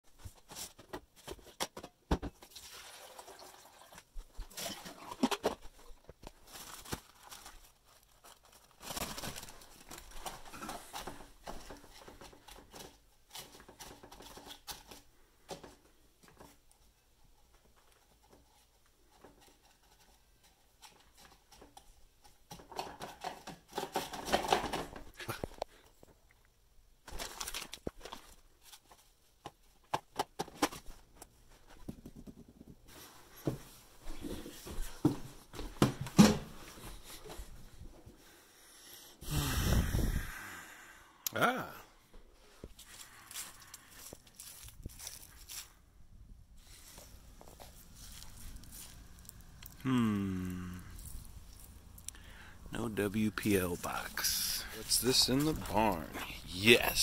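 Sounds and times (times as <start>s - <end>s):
paper filter crinkling: 4.3s - 15.0s, 27.0s - 29.2s, 42.4s - 45.8s, 46.6s - 49.9s, 50.9s - 57.0s.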